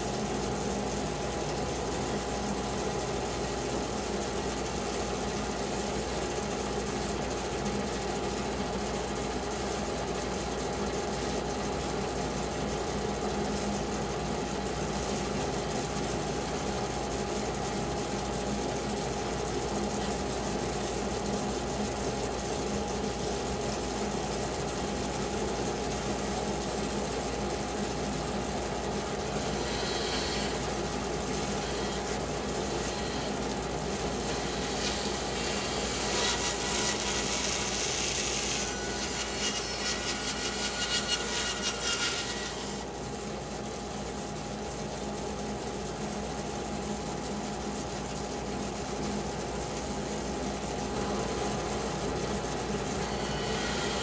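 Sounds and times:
bandsaw cutting wood: 34.2s - 42.9s.

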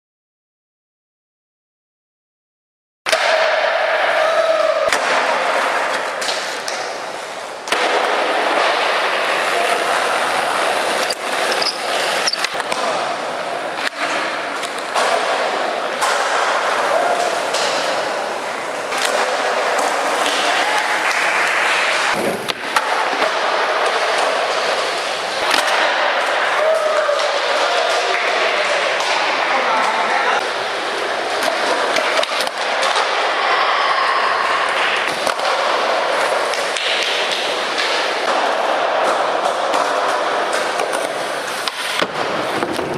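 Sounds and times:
voices: 3.1s - 41.8s
skateboard wheels rolling on concrete: 3.3s - 42.9s.

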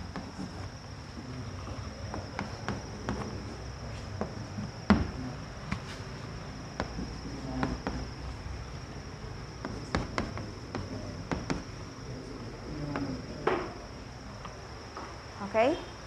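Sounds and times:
chalk tapping on blackboard: 2.1s - 3.5s, 6.8s - 8.1s, 9.6s - 11.8s.

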